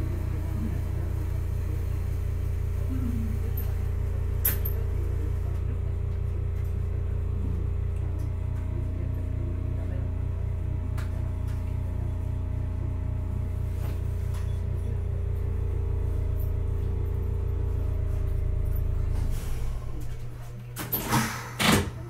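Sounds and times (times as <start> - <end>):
tram equipment humming: 0.0 - 22.0
steady electric tones: 14.6 - 21.2.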